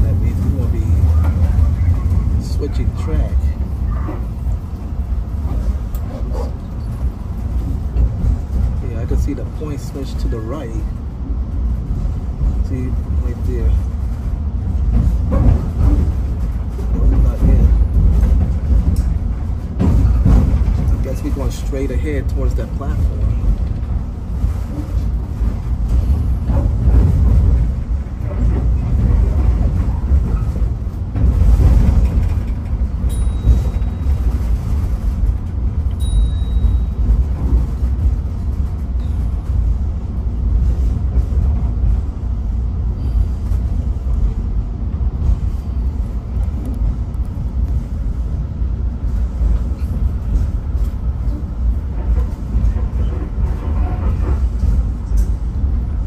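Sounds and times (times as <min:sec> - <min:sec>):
train rumbling on track: 0:00.0 - 0:56.0
train squeals: 0:36.0 - 0:37.2, 0:39.0 - 0:39.4.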